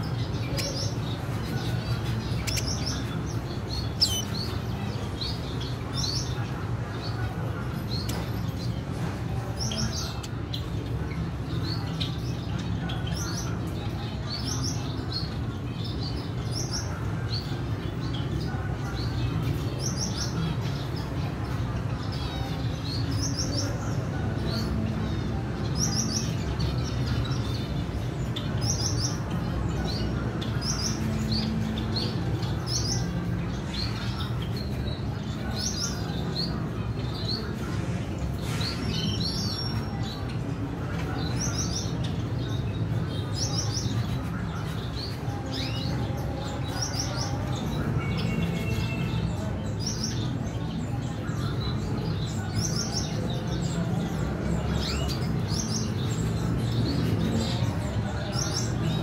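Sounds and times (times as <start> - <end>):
finches chirping: 0.0 - 23.8.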